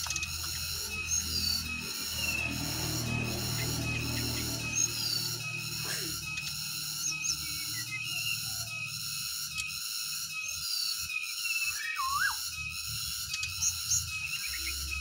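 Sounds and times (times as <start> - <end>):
steady high-pitched buzz: 0.0 - 15.0
bird fluty whistles: 10.4 - 12.4, 13.3 - 15.0.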